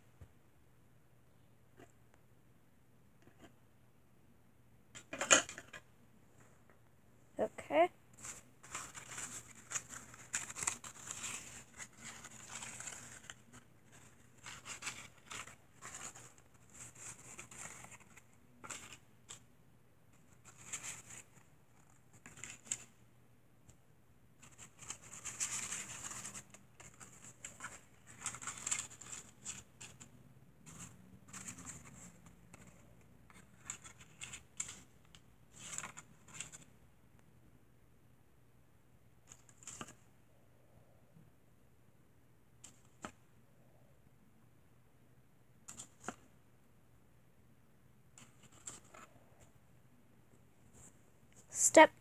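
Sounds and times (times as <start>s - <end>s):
paper liners rustling and crinkling: 8.1s - 19.4s, 20.1s - 23.0s, 24.4s - 36.8s, 39.2s - 40.1s, 48.2s - 49.5s.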